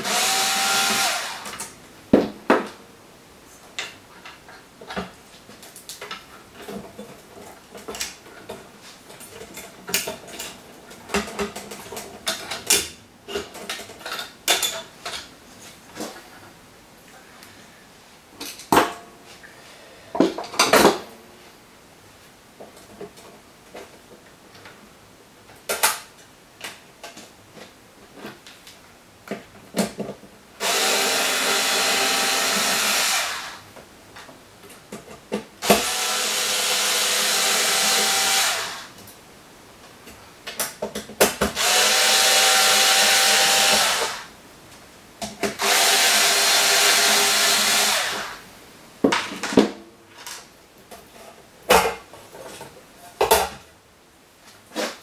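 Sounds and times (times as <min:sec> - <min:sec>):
power screwdriver motor: 0:00.0 - 0:01.5, 0:30.6 - 0:33.6, 0:35.6 - 0:38.9, 0:41.6 - 0:44.3, 0:45.6 - 0:48.4.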